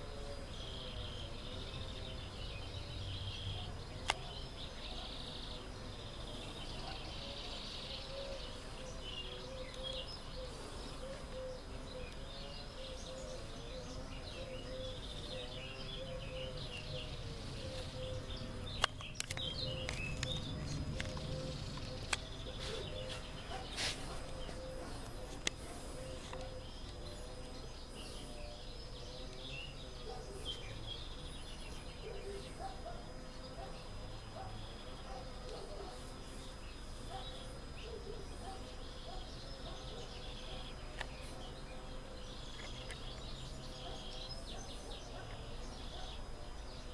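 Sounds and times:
small birds chirping: 0.0s - 46.9s
steady low hum: 0.0s - 46.9s
sharp clicks: 18.8s - 22.3s.

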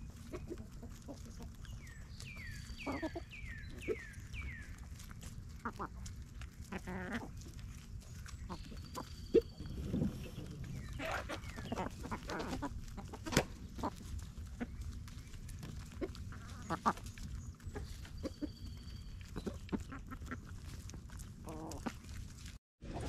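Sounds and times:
chickens clucking: 0.0s - 23.0s
rustling in dry leaves: 0.0s - 23.0s.

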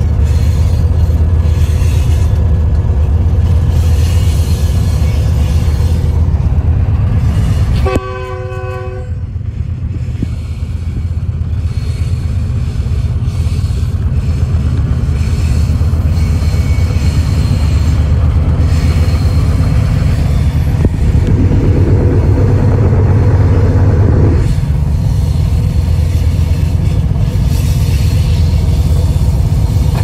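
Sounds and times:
locomotive engine rumbling: 0.0s - 30.0s
locomotive horn blast: 7.7s - 9.3s.

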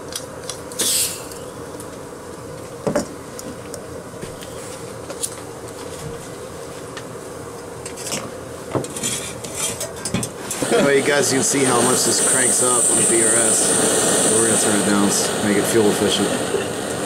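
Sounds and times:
gas stove burner hissing: 0.0s - 17.0s.

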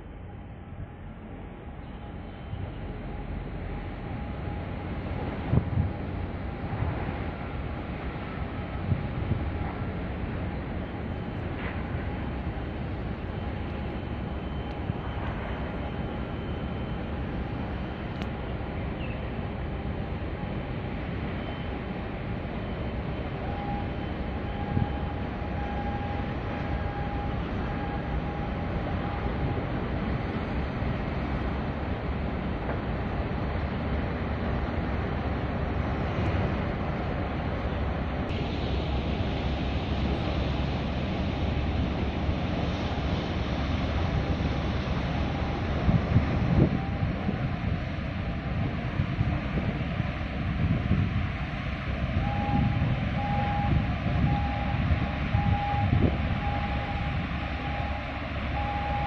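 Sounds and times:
cruise ship passing: 0.0s - 59.0s
wind buffeting microphone: 2.6s - 16.4s, 17.0s - 59.0s.

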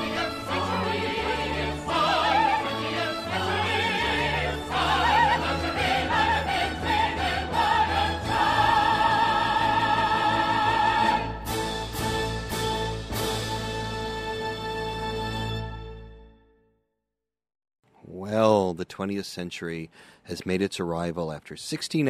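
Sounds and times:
operatic singing: 0.0s - 11.7s
orchestra: 0.0s - 16.5s.

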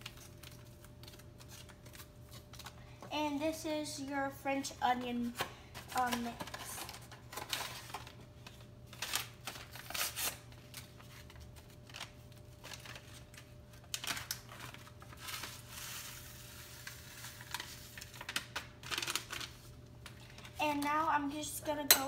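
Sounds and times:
paper packet rustling: 5.2s - 20.9s.

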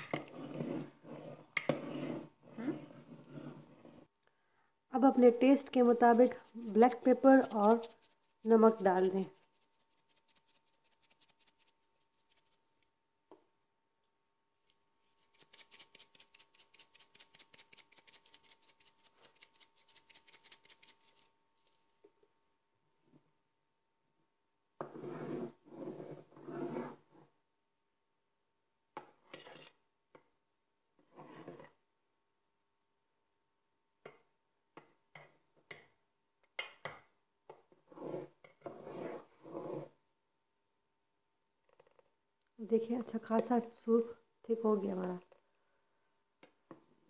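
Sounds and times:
spoon scraping metal pot: 6.0s - 11.2s, 29.2s - 29.8s
spice shaker rattling: 15.1s - 21.3s.

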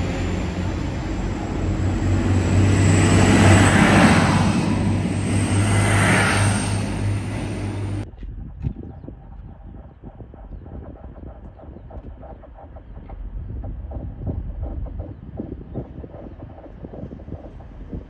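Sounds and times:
diesel engine drone: 0.0s - 8.1s
train wheel and rail noise: 0.0s - 8.1s.

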